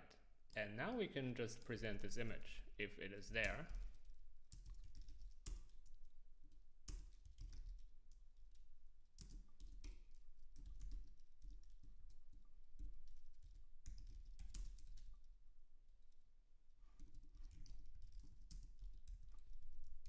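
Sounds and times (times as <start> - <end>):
typing on computer keyboard: 3.4 - 6.0, 6.9 - 8.6, 9.2 - 15.3, 17.0 - 20.0.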